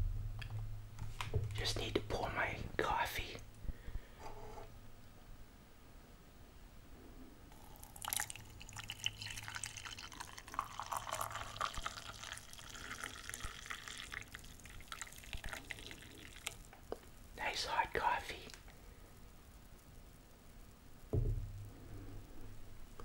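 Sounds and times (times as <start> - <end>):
coffee pouring into a mug: 7.5 - 17.0.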